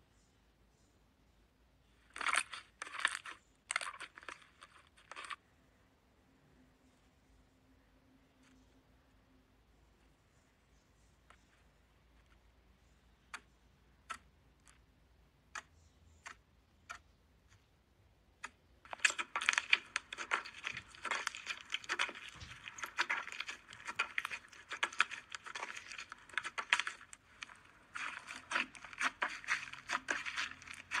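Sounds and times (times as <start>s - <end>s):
slime crackling and popping: 18.8s - 31.0s.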